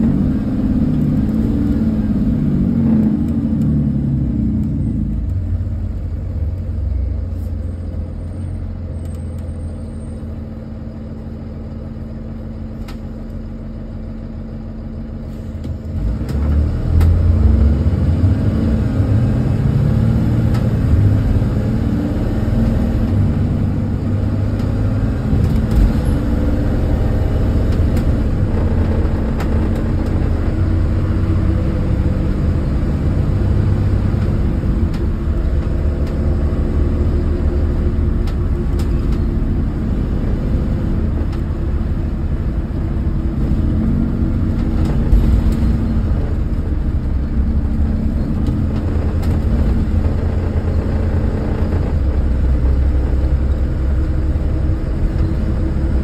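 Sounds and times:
bus diesel engine drone: 0.0 - 56.0
road noise: 0.0 - 56.0.

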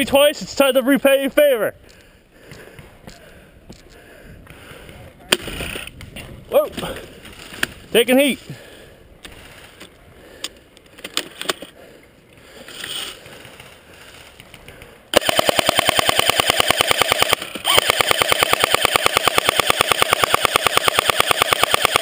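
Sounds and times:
airsoft machine gun firing: 15.1 - 22.0.

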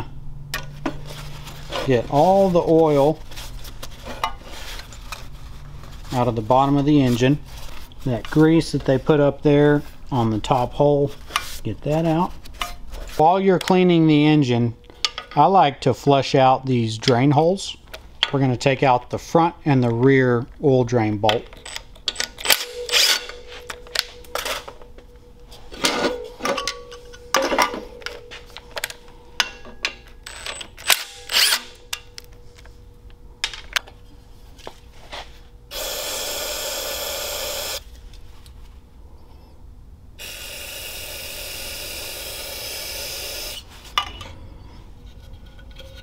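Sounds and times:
cordless driver whirring: 22.5 - 23.3, 30.5 - 31.8, 35.7 - 37.8, 40.2 - 43.6.

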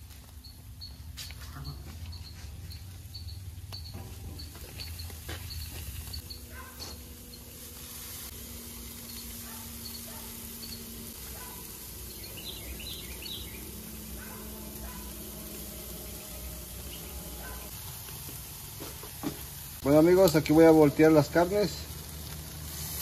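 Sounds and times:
bird chirping: 0.4 - 7.5, 8.9 - 15.1, 16.0 - 17.7
meat sizzling on grill: 3.0 - 23.0.

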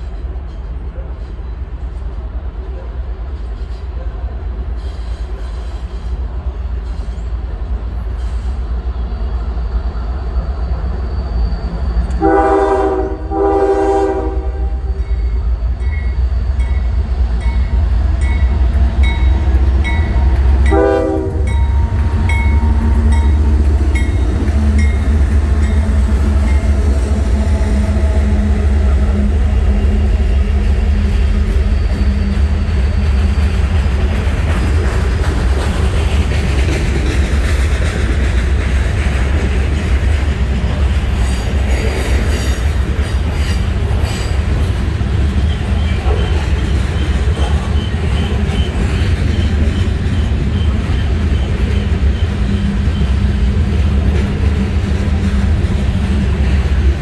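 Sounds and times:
diesel locomotive engine rumble: 0.0 - 57.0
locomotive air horn blasts: 12.2 - 15.0, 20.2 - 21.9
locomotive bell ringing: 14.8 - 29.1
freight cars rolling past: 14.9 - 57.0.

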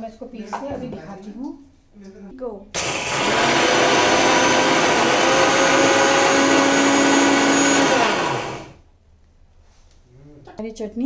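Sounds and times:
electric mixer grinder running: 2.8 - 8.8
motor winding down whine: 2.8 - 8.8.

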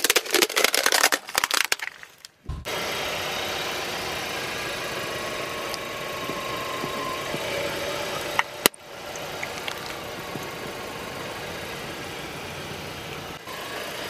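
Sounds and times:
tyre crushing plastic ball: 0.0 - 2.5
car engine running: 2.4 - 14.0.

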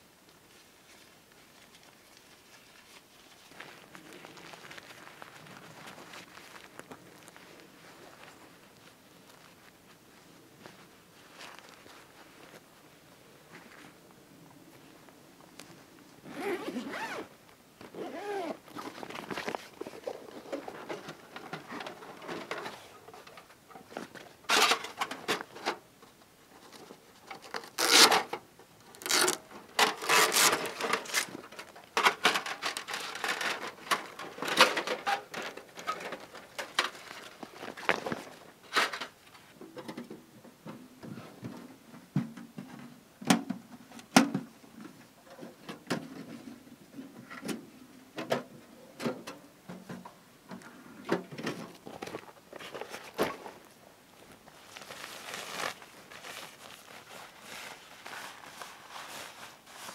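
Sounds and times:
nylon bag rustling: 16.2 - 20.7, 27.6 - 28.1, 29.0 - 31.4, 51.8 - 59.9.

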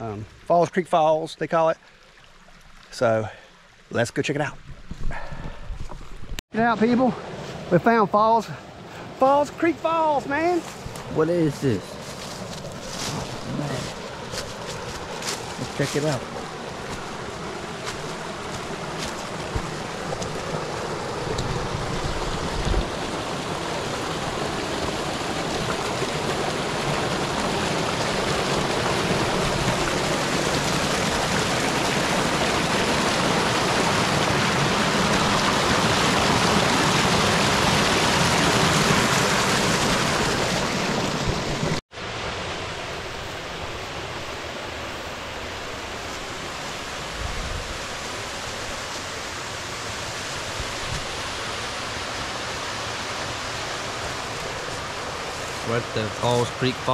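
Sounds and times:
water rushing over rocks: 9.2 - 56.9
waterfall pouring into pool: 19.2 - 41.7, 51.2 - 56.9.

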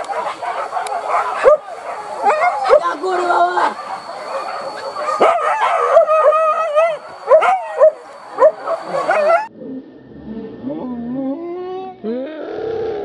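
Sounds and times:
dogs barking yelping and howling: 0.0 - 9.5.

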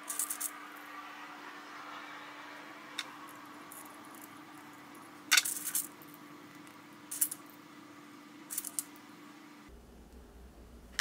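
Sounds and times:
metallic clicks of steel balls: 0.0 - 0.6
faint steady hum: 0.0 - 11.0.

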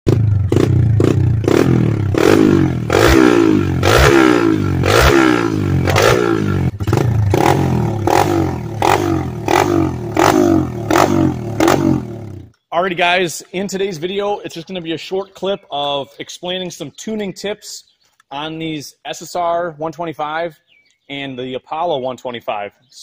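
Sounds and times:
pit bike engine revving: 0.1 - 12.5.

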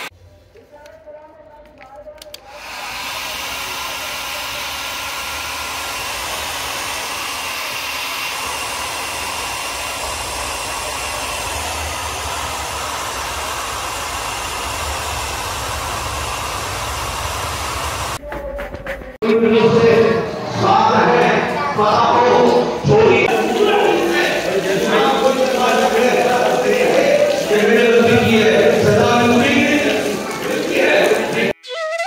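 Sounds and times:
hair dryer blowing air: 2.4 - 18.2, 23.3 - 31.5.

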